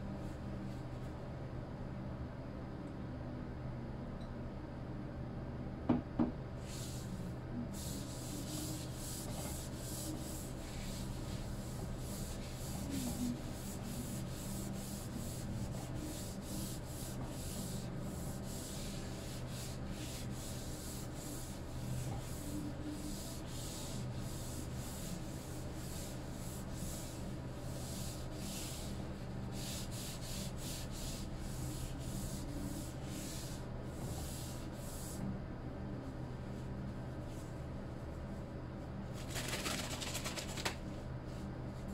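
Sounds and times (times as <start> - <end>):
steady low hum: 0.0 - 41.9
cloth rubbing wooden board: 7.8 - 33.6.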